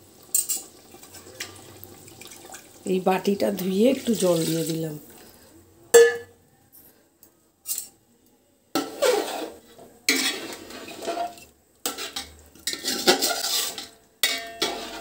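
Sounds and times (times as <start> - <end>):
metal spoon scraping in a pot: 8.8 - 15.0.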